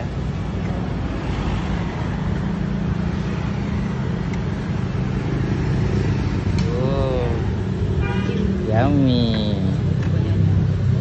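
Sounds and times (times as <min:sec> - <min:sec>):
street traffic: 0:00.0 - 0:11.0.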